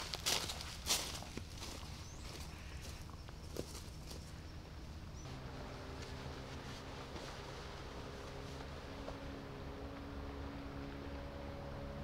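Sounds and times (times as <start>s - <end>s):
distant motor drone: 4.0s - 12.0s.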